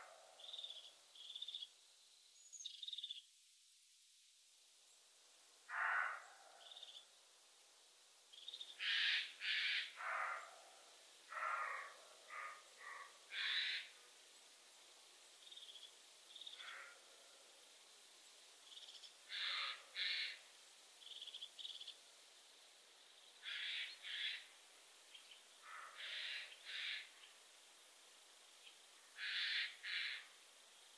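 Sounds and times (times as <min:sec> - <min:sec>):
faint high bird chirps: 0:00.4 - 0:03.3
short rough animal calls: 0:05.7 - 0:06.8, 0:08.8 - 0:10.6, 0:11.3 - 0:13.9, 0:19.3 - 0:20.4.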